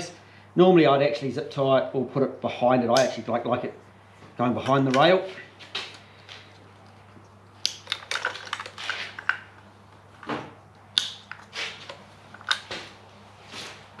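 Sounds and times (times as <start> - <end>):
wires rustling: 4.2 - 14.0.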